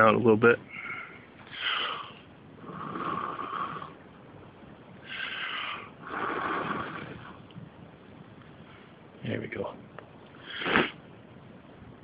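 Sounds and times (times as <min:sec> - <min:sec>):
person blowing hard on fire: 0:05.0 - 0:07.4, 0:10.4 - 0:11.0.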